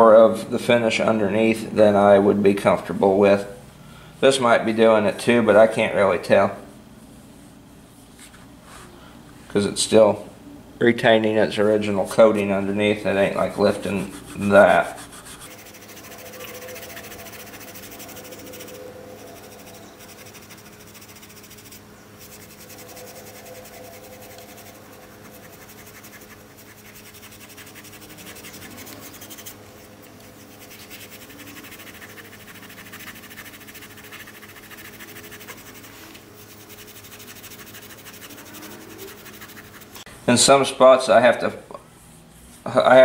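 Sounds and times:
steel wool scrubbing wood: 0:13.8 - 0:40.0.

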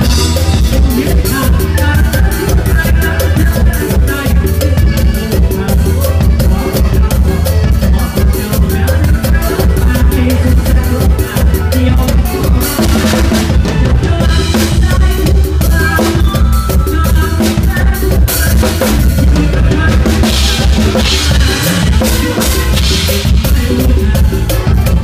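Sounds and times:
drum kit playing fast pattern: 0:00.0 - 0:25.0
live band playing: 0:00.0 - 0:25.0.

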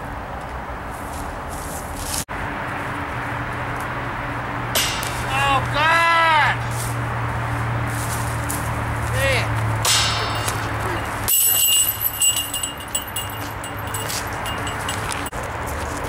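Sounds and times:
metal chains jingling: 0:09.9 - 0:15.3.

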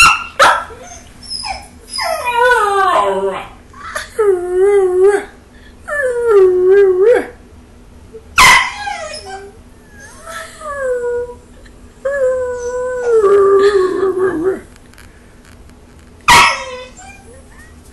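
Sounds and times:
puppy howling whine: 0:00.7 - 0:03.6, 0:04.2 - 0:07.4, 0:08.4 - 0:14.7, 0:16.3 - 0:17.8
puppy sharp bark: 0:16.3 - 0:16.8.

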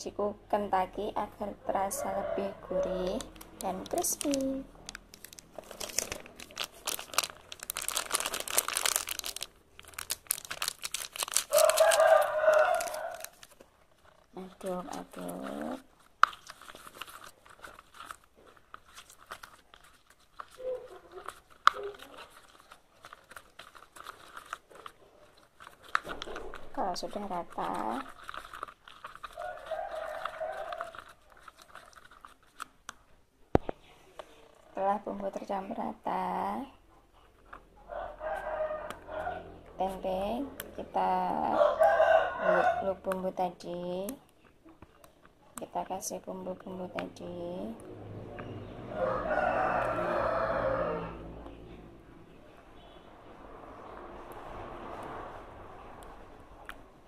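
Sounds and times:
plastic packet crinkling: 0:02.8 - 0:33.7
spoon stirring wet batter: 0:11.2 - 0:33.2.

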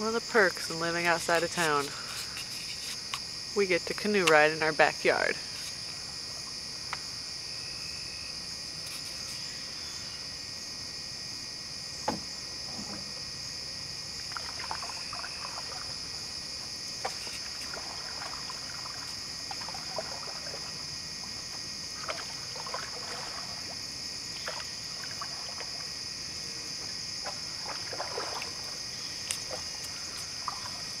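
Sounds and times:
crickets and insects chirping: 0:00.0 - 0:31.0
paddle splashing and dripping: 0:14.2 - 0:26.0, 0:26.8 - 0:31.0.

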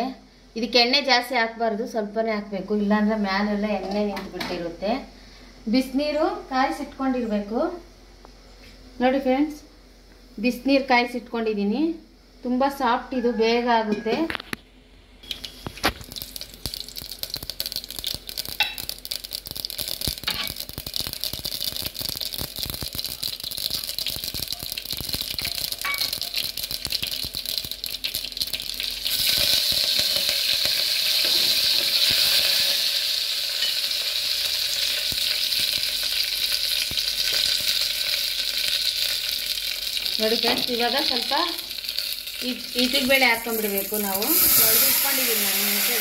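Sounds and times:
mustard seeds popping in oil: 0:15.2 - 0:46.0
oil sizzling: 0:15.2 - 0:46.0.

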